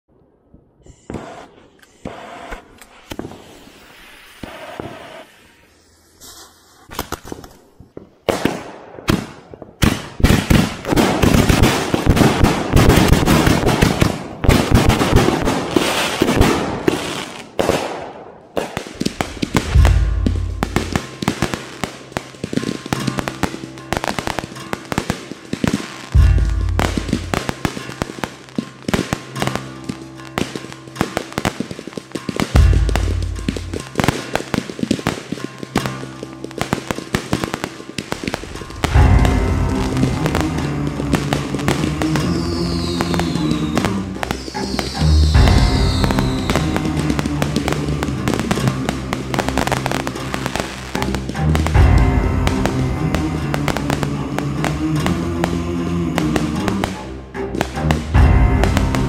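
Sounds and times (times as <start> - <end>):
fireworks bangs and crackles: 0.4 - 59.0
music: 8.2 - 59.0
deep firework booms: 17.6 - 21.6, 37.3 - 50.7, 51.5 - 57.0, 57.6 - 59.0.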